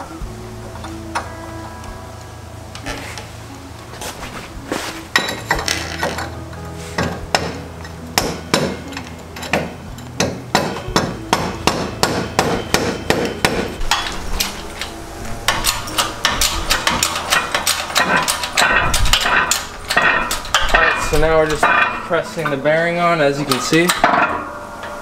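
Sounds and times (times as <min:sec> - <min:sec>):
mallet striking metal: 0:07.0 - 0:07.6, 0:08.2 - 0:14.2, 0:23.7 - 0:25.0.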